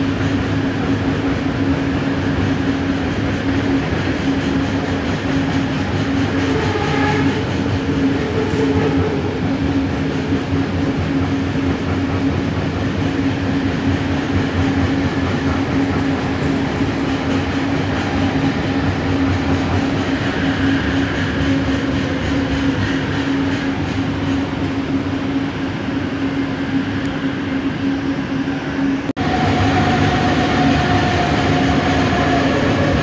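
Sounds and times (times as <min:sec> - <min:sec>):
train wheels rumbling on track: 0:00.0 - 0:33.0.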